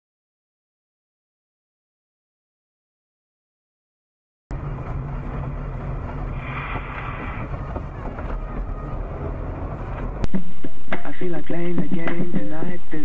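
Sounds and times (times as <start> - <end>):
car engine and road noise: 4.5 - 12.7.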